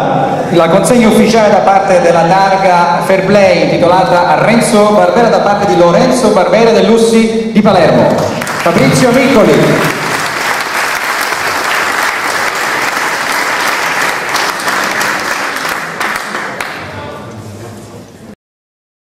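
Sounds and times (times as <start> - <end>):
audience applauding: 8.2 - 17.1.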